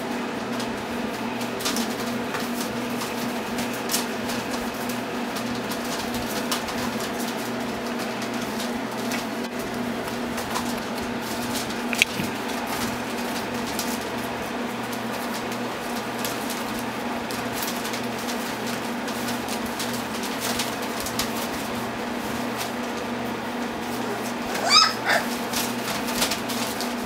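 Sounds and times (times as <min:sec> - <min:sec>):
puppies clicking and rustling: 0:00.4 - 0:27.0
puppy squeak: 0:24.4 - 0:25.3.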